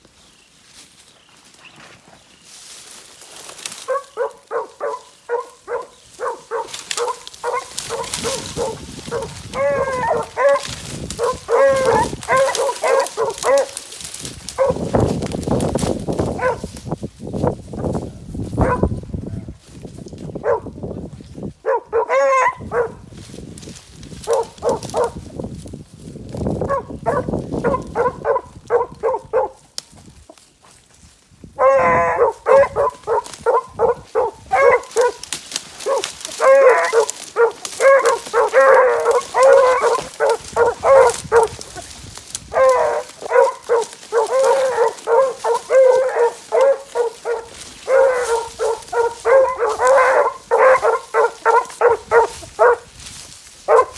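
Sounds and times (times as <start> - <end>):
beagles baying: 3.6 - 14.9, 16.3 - 16.7, 21.6 - 23.0, 24.2 - 25.2, 26.6 - 29.7, 31.6 - 52.9, 53.7 - 53.9.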